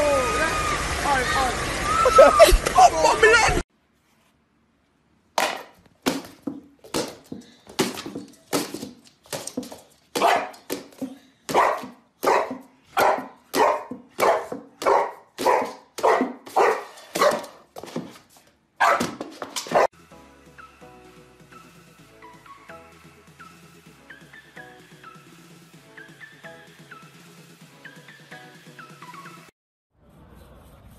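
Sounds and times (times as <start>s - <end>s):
dog barking: 10.2s - 10.6s, 11.5s - 17.6s, 18.8s - 19.9s.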